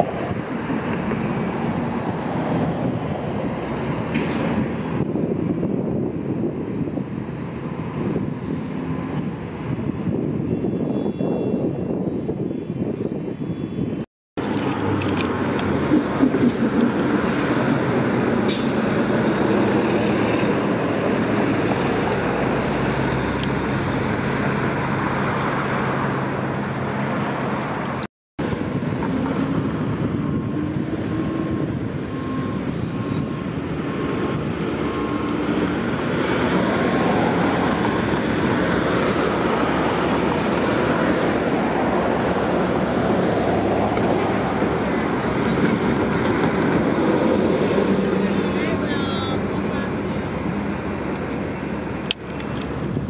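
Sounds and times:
truck passing: 0.0s - 10.2s, 14.4s - 53.0s
cars passing: 0.0s - 10.9s, 13.9s - 53.0s
bus engine pulling away: 14.4s - 53.0s.

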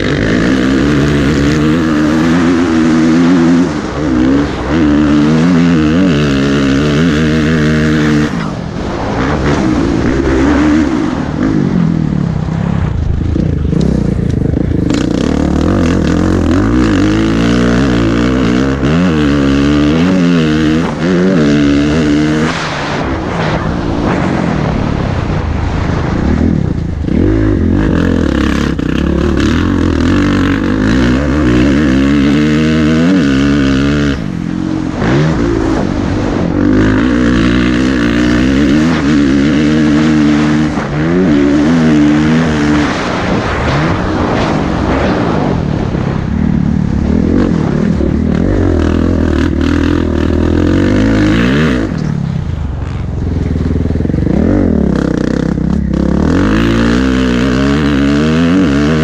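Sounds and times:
motocross bike engine revving: 0.0s - 59.0s
wind rushing over microphone: 0.0s - 59.0s.

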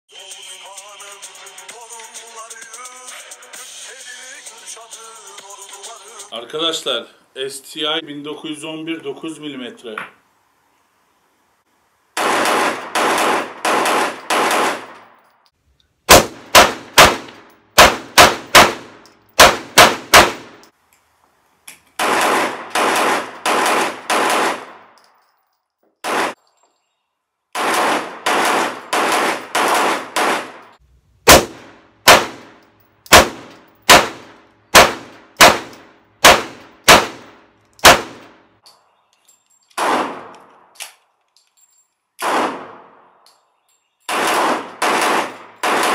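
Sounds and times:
pistol shots cracking: 12.2s - 15.2s, 16.1s - 20.7s, 22.0s - 25.0s, 26.0s - 26.4s, 27.6s - 38.5s, 39.8s - 41.0s, 42.2s - 43.2s, 44.1s - 45.9s
duller gun bangs: 16.1s - 20.6s, 31.3s - 38.3s.

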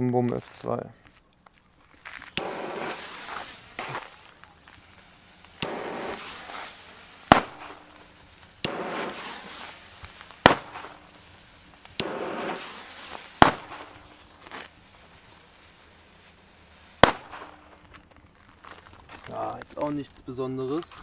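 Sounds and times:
fuse hiss: 1.8s - 18.1s
firecracker bangs: 2.1s - 17.9s.

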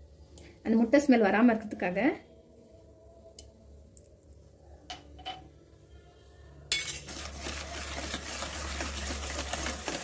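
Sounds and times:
whisk beating batter: 7.0s - 10.0s.

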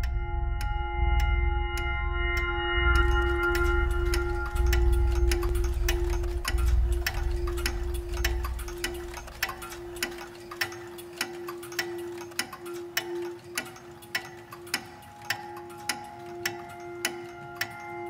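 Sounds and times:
deep rumble: 0.0s - 9.4s
clock ticking: 0.0s - 18.0s.

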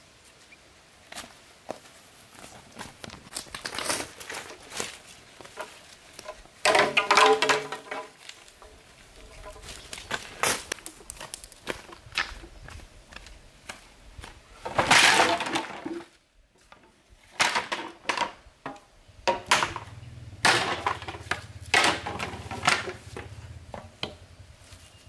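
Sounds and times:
bamboo poles clattering: 2.9s - 13.2s, 14.6s - 24.2s
hollow knocks of bamboo poles: 5.5s - 12.5s, 16.7s - 24.3s.

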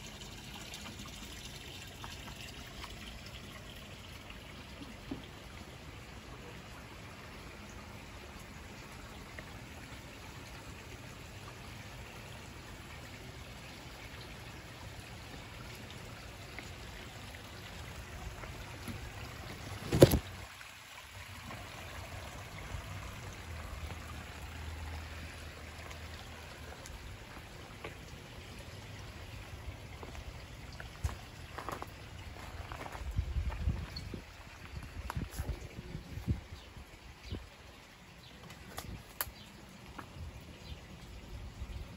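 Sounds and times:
water trickling in a pond: 0.0s - 41.9s
leaves knocking on microphone: 19.6s - 20.4s.

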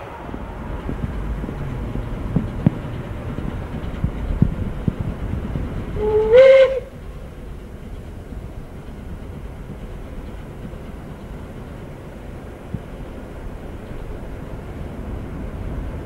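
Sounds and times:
steam locomotive rumble: 0.0s - 16.0s
locomotive whistle blast: 6.0s - 7.0s.

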